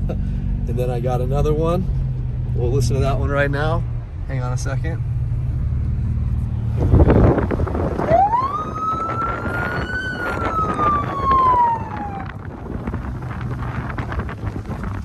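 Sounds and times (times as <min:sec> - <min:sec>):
vehicle noise: 0:00.0 - 0:15.0
electronic siren wail: 0:08.0 - 0:12.4.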